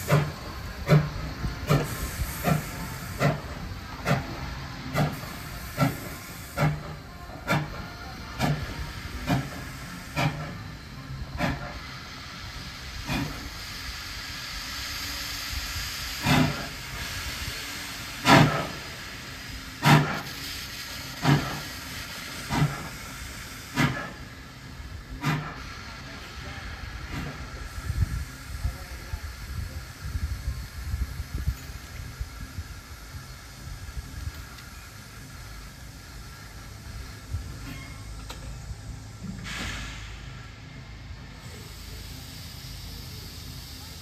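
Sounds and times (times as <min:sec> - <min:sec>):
steady hiss of steam: 0:00.0 - 0:44.0
steam locomotive chuffing: 0:00.0 - 0:44.0.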